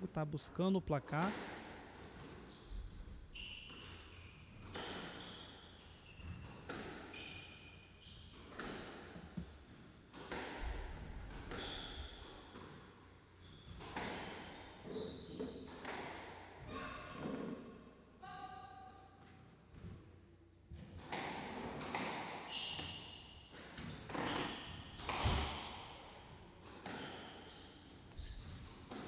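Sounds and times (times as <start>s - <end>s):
squash ball hits echoing: 1.2s - 2.4s, 6.3s - 7.3s, 10.1s - 12.8s, 13.8s - 14.5s, 20.8s - 22.9s, 23.5s - 27.2s
shoes squeaking on hardwood floor: 11.6s - 12.2s, 14.5s - 15.7s, 23.8s - 25.0s, 27.0s - 28.6s.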